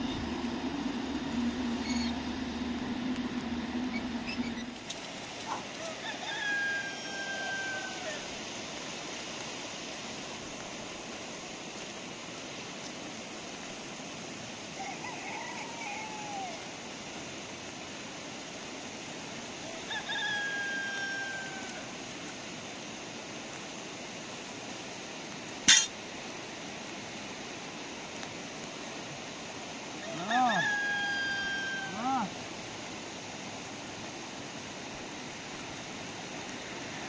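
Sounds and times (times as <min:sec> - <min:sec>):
steady background hiss: 0:00.0 - 0:37.0
rooster crowing: 0:05.7 - 0:08.4, 0:14.8 - 0:16.7, 0:19.6 - 0:22.0, 0:30.0 - 0:32.3.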